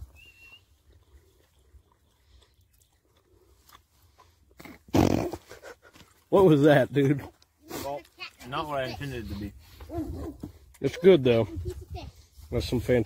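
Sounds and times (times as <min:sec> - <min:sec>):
person chewing: 0:00.4 - 0:06.3.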